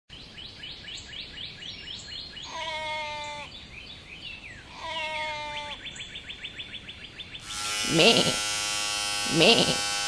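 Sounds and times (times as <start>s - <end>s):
bird chirps: 0.1s - 7.5s
sheep bleating: 2.5s - 3.5s, 4.7s - 5.8s, 7.6s - 10.0s.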